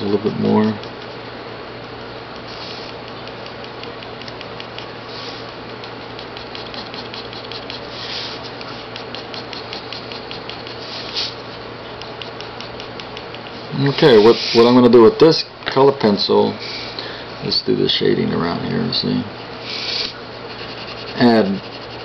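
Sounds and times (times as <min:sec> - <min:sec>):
steady low hum: 0:00.0 - 0:22.0
pen scratching on paper: 0:02.5 - 0:11.4, 0:12.0 - 0:14.8, 0:19.5 - 0:22.0.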